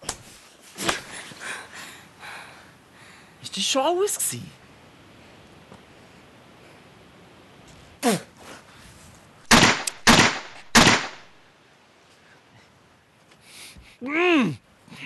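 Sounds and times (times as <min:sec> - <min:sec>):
loud sharp impacts: 0:09.5 - 0:11.4.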